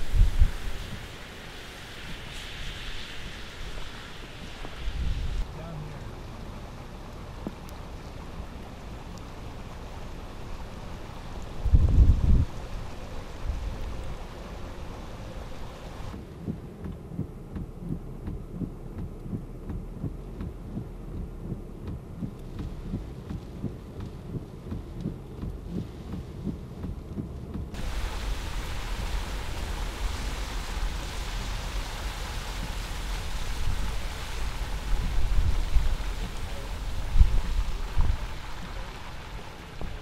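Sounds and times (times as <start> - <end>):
wind buffeting microphone: 0.0 - 3.8, 11.5 - 14.2, 21.5 - 40.0
heavy rain hissing: 0.0 - 16.2, 27.8 - 40.0.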